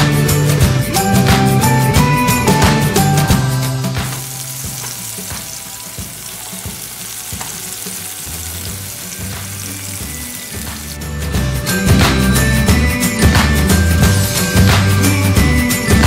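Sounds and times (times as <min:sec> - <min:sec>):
background music: 0:00.0 - 0:16.0
scallops sizzling in oil: 0:03.2 - 0:11.3.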